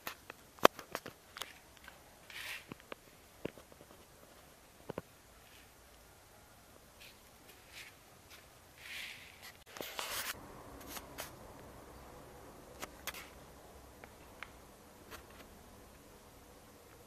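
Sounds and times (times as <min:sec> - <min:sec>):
faint low hum: 0:10.0 - 0:17.0.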